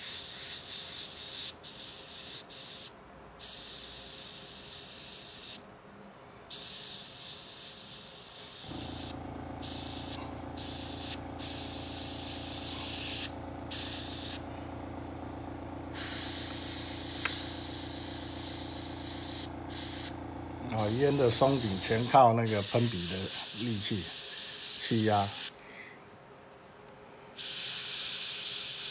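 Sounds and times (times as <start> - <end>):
airbrush spraying hiss: 0.0 - 5.6, 6.5 - 14.4, 15.9 - 25.5, 27.4 - 28.9
steady low hum: 8.6 - 22.7.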